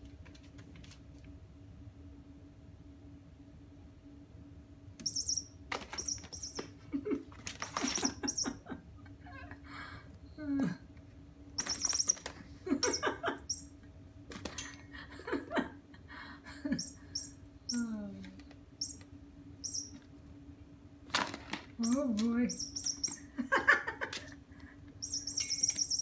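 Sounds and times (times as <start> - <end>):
cat toy squeaky chirps: 5.0 - 6.7, 7.6 - 8.6, 11.6 - 13.7, 16.8 - 17.4, 18.8 - 19.0, 19.6 - 20.0, 21.8 - 23.3, 25.0 - 26.0
low hum: 11.4 - 13.9, 14.6 - 20.8, 21.8 - 23.6, 24.5 - 26.0.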